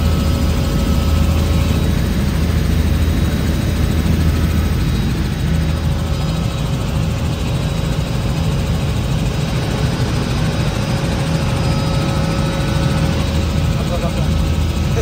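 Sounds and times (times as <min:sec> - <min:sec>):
helicopter engine and rotor drone: 0:00.0 - 0:15.0.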